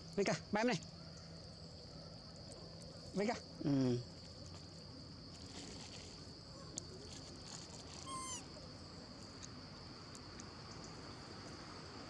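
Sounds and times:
short high animal call: 0:08.0 - 0:08.4.

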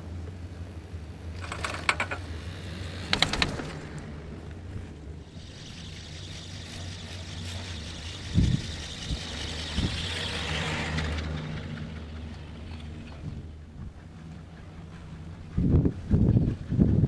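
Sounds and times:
steady low hum: 0:00.0 - 0:17.0
chairlift grip rapid clicks: 0:01.4 - 0:04.1.

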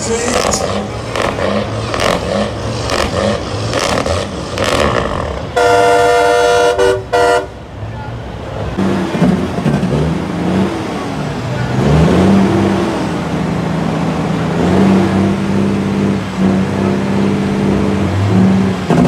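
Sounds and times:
crowd voices: 0:00.0 - 0:19.0
truck air horn blasts: 0:04.6 - 0:07.6.

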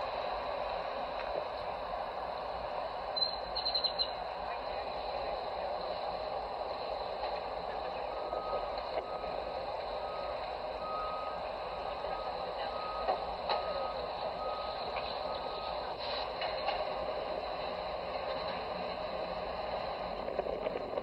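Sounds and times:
outdoor background noise: 0:00.0 - 0:21.0
faint repeating beep: 0:08.1 - 0:15.9.

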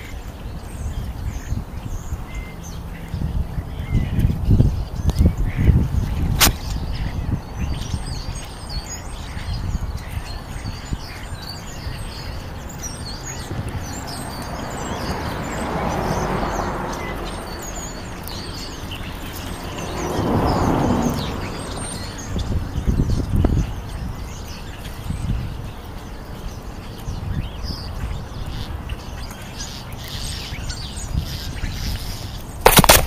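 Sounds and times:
small birds chirping: 0:00.0 - 0:33.0
sharp click: 0:32.7 - 0:33.0.

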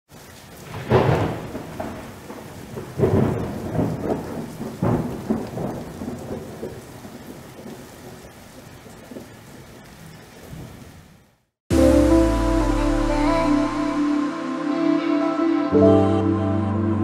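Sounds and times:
steady rain: 0:00.1 - 0:16.0
thunder rumbling: 0:00.5 - 0:09.8.

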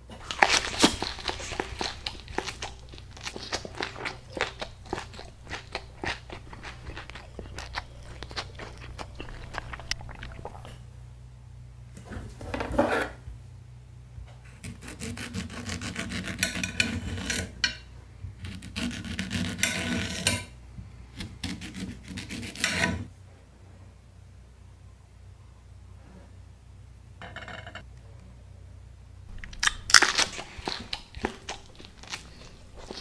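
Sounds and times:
knife sawing through banana: 0:14.6 - 0:17.5, 0:18.4 - 0:20.2, 0:21.2 - 0:23.1.

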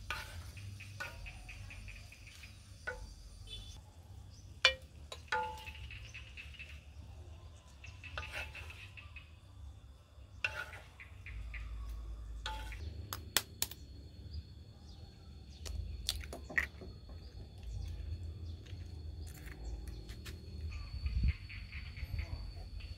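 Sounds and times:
wooden spatula scraping clay wok: 0:00.0 - 0:03.1, 0:08.1 - 0:09.1, 0:10.4 - 0:11.1.

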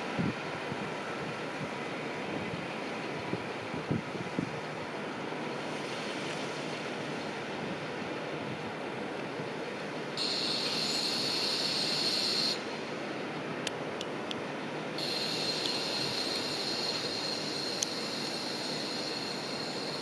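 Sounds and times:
steady background noise: 0:00.0 - 0:20.0
train wheels squealing: 0:10.2 - 0:12.6, 0:15.0 - 0:20.0.

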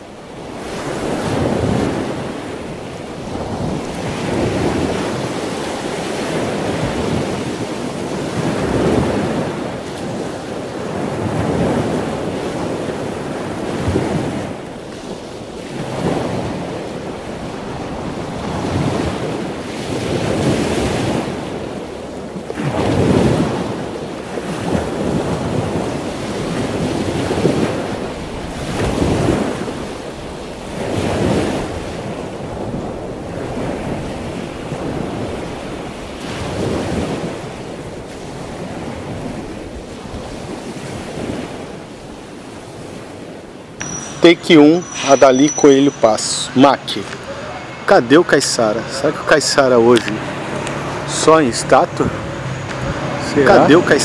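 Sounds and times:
wind noise on microphone: 0:00.0 - 0:48.0, 0:52.0 - 0:54.0
waves breaking: 0:00.0 - 0:54.0.

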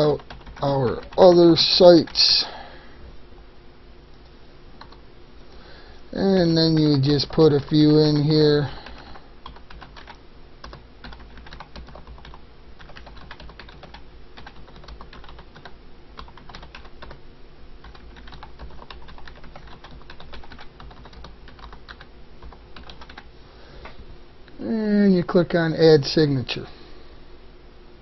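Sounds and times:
faint low hum: 0:00.0 - 0:28.0
keyboard typing clicks: 0:00.2 - 0:01.4, 0:04.8 - 0:05.0, 0:08.9 - 0:17.2, 0:17.8 - 0:23.2.

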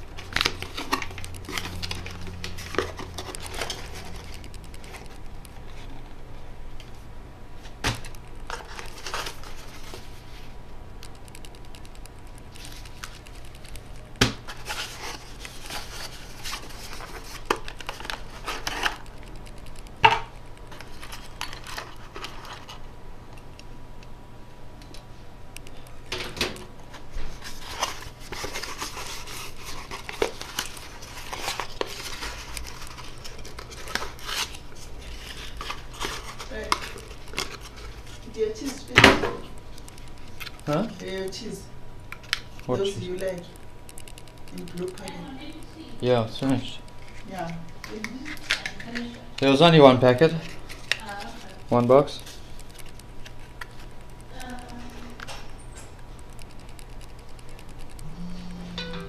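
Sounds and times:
cardboard rustling and scraping: 0:00.2 - 0:06.0, 0:12.5 - 0:19.1, 0:27.0 - 0:39.0.

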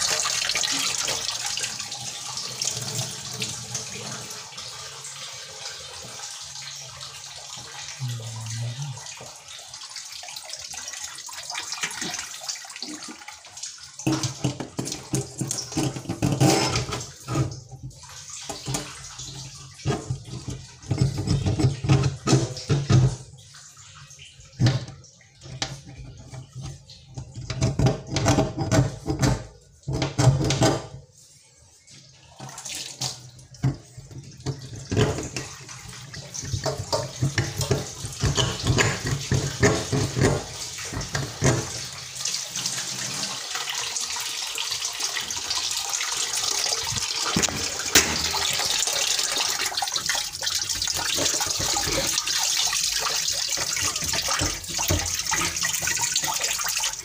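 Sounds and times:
tap water running into sink: 0:00.0 - 0:57.0
knocks and splashes in drain: 0:10.6 - 0:23.6, 0:24.3 - 0:31.1, 0:32.3 - 0:43.8, 0:45.1 - 0:57.0.

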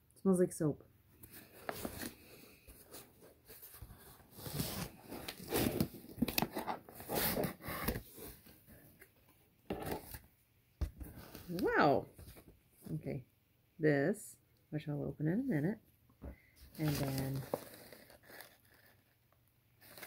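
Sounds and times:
paper rustling and crinkling: 0:01.2 - 0:08.5, 0:16.7 - 0:20.0.

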